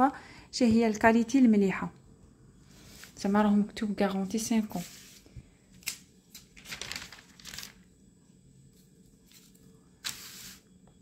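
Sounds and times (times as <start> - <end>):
catalogue pages rustling: 4.8 - 7.9.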